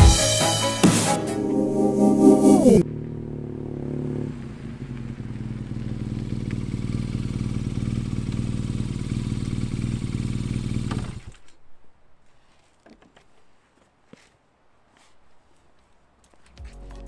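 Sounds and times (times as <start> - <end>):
motorcycle engine idling: 2.8 - 11.3.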